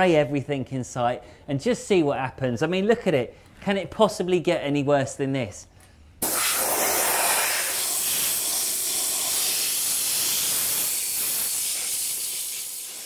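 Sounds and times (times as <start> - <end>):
spray gun hissing: 6.2 - 13.0.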